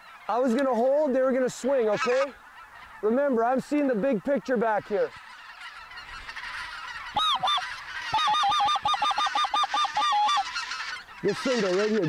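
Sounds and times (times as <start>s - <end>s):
distant geese chattering: 0.0s - 12.0s
geese honking: 0.0s - 12.0s
rapid honking clucks: 1.6s - 12.0s.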